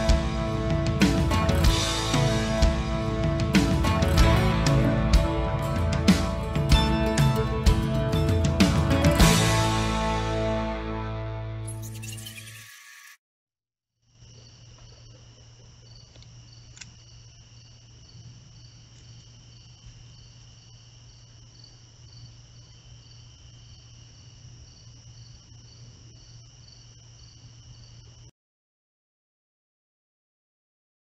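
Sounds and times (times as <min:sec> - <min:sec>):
insect chirping: 0:14.0 - 0:28.3
insects trilling: 0:14.1 - 0:28.3.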